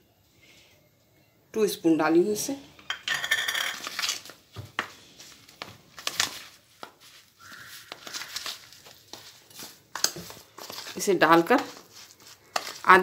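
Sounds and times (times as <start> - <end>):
spoon scraping plastic bowl: 7.6 - 13.0.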